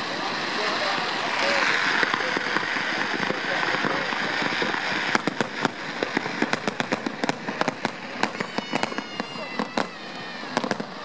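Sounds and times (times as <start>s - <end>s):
firework bangs: 0.0s - 11.0s
spark fountains hissing and crackling: 0.0s - 11.0s.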